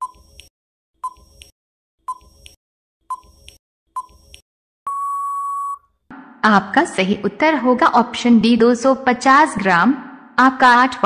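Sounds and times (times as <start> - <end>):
short electronic beeps: 4.9 - 5.8
long steady beep: 4.9 - 6.3.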